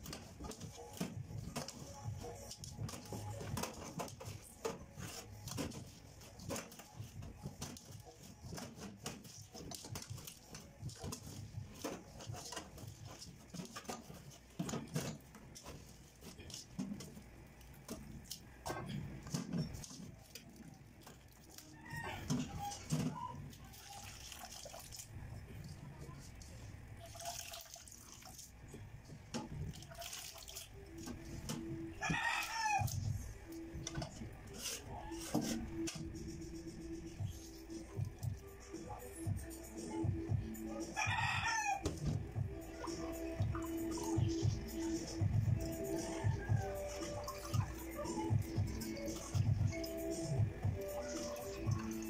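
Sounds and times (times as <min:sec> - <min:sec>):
wet squelching of hands in bowl: 0:00.0 - 0:28.8, 0:29.5 - 0:31.6
hands squeezing wet coconut: 0:19.2 - 0:25.2
rooster crowing: 0:21.7 - 0:22.8, 0:32.0 - 0:33.0, 0:41.0 - 0:42.0, 0:45.9 - 0:47.4.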